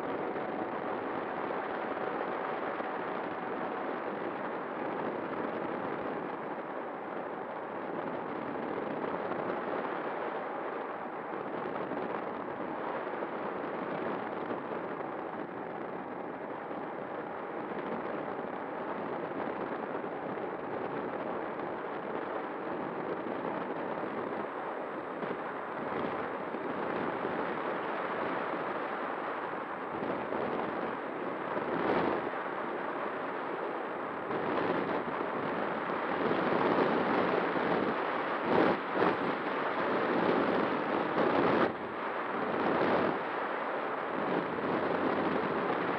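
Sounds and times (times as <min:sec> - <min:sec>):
wind rushing over microphone: 0:00.0 - 0:45.9.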